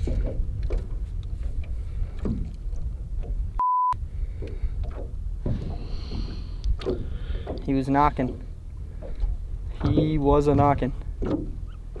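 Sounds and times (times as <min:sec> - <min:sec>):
wind rumble on microphone: 0:00.0 - 0:12.0
censor bleep: 0:03.6 - 0:04.0.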